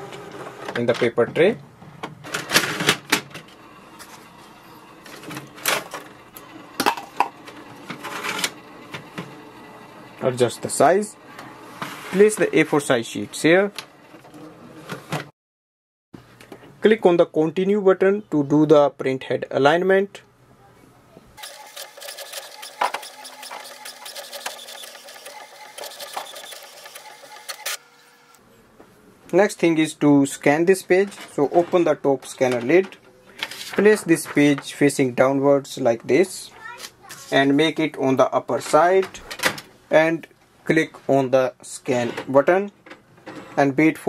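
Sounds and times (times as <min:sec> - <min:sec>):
inkjet printer whirring: 0:02.3 - 0:12.4, 0:21.4 - 0:28.4
printer clicks: 0:21.4 - 0:27.8.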